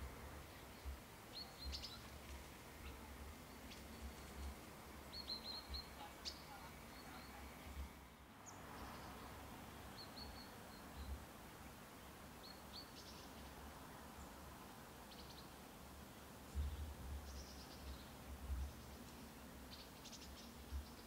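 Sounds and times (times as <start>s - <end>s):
faint high bird chirps: 0.8s - 2.1s, 2.8s - 7.7s, 9.9s - 11.2s.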